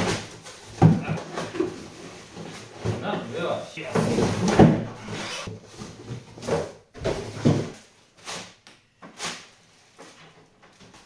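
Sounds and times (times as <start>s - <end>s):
cardboard scraping: 3.9s - 7.8s.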